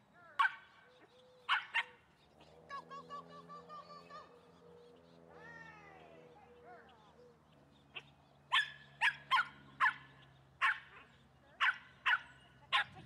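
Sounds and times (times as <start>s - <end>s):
dog barking: 0.4s - 0.7s, 1.5s - 2.0s, 8.5s - 13.0s.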